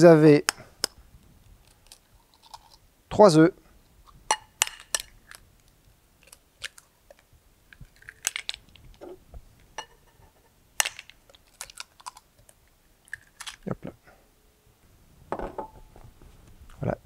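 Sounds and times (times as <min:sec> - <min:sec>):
eggshells cracking against bowl: 0:04.3 - 0:05.4, 0:06.2 - 0:08.9, 0:10.8 - 0:13.6.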